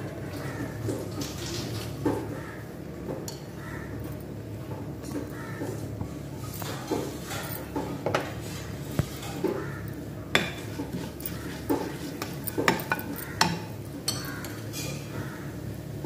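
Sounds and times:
spatula scraping a pan: 10.4 - 13.5.

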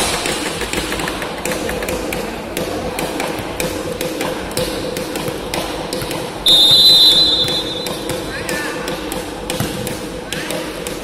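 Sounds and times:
volleyball being hit: 0.0 - 11.0
referee's whistle: 6.4 - 8.0.

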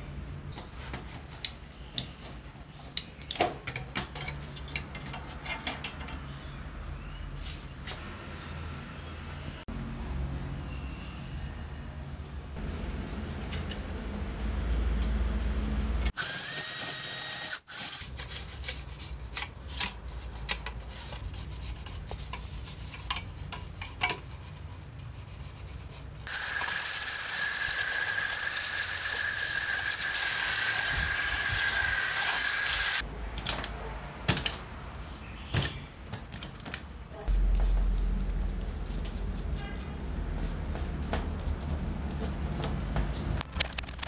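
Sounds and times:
power tool motor whine: 16.2 - 18.0, 26.3 - 33.0.

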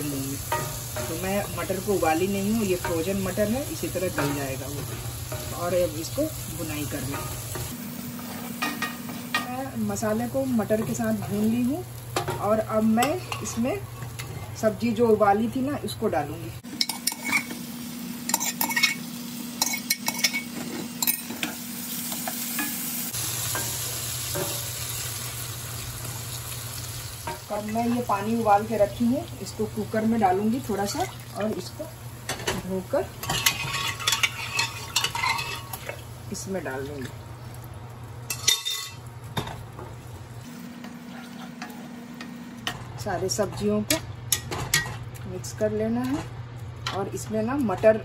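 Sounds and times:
food sizzling: 0.0 - 48.0
spatula scraping skillet: 16.8 - 17.6, 33.2 - 35.8
wooden spatula stirring in pan: 40.8 - 41.9.

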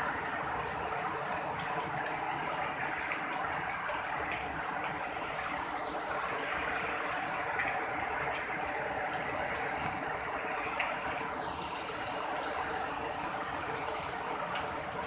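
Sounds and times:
heavy rain falling: 0.0 - 15.0
faint sharp drip ticks: 7.6 - 11.1.

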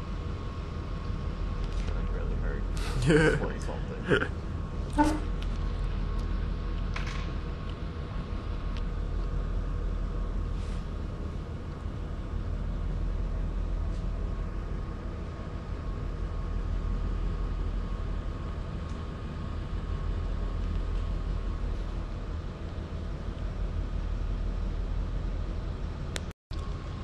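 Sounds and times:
low hum and rumble: 0.0 - 27.0.

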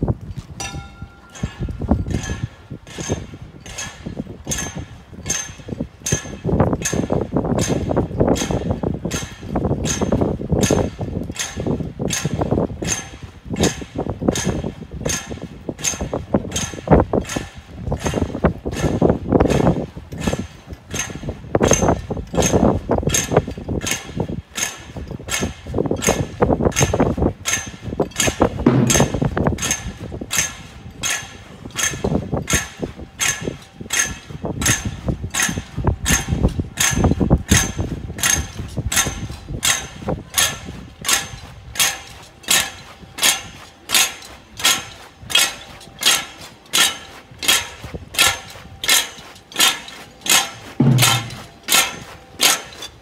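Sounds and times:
clacking in marching rhythm: 0.0 - 53.0
dull rumble: 28.7 - 29.6.

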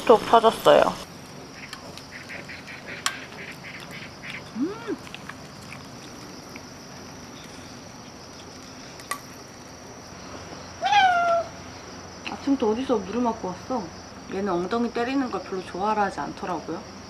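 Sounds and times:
faint steady hiss: 0.0 - 17.0
cat meowing: 10.8 - 11.5.

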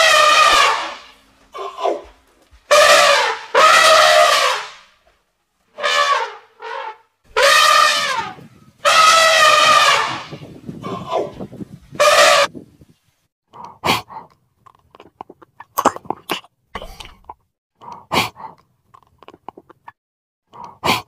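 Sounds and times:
elephant trumpeting: 0.0 - 2.1, 2.7 - 4.9, 5.7 - 11.3, 12.0 - 12.5.

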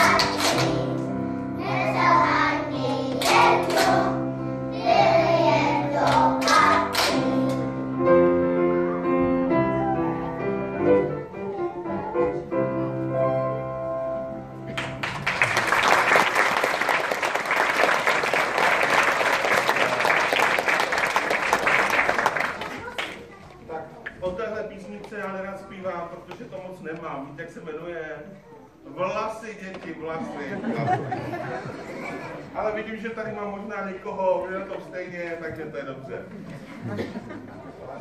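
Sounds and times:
children's choir singing: 0.0 - 8.0
instrumental accompaniment: 0.0 - 15.0
audience applause: 14.7 - 23.2.

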